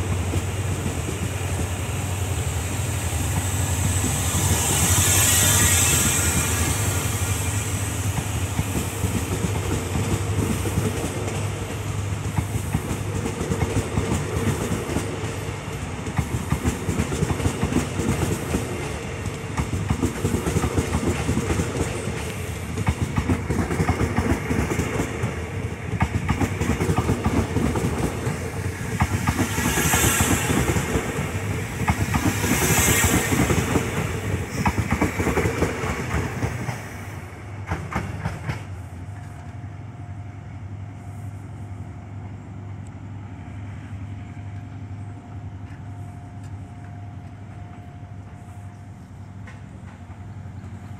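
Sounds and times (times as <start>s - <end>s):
low train rumble: 0.0s - 50.9s
brief hisses: 4.5s - 8.0s
train wheels clacking over rail joints: 8.0s - 37.0s, 37.6s - 39.5s.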